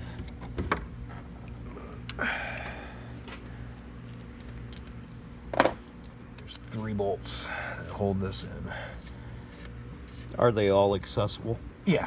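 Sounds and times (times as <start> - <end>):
steady low hum: 0.0 - 12.0
rubbing scrape: 7.8 - 10.4.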